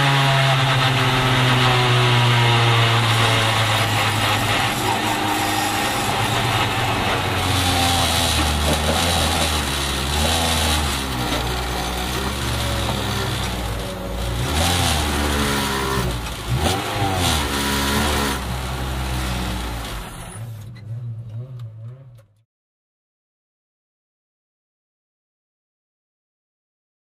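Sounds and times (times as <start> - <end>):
car engine revving: 0.0 - 22.4.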